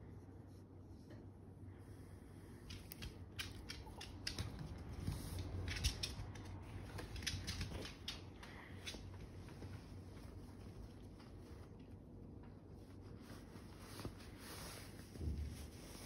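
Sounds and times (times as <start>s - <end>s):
dog claws clicking on wooden floor: 2.7s - 9.3s.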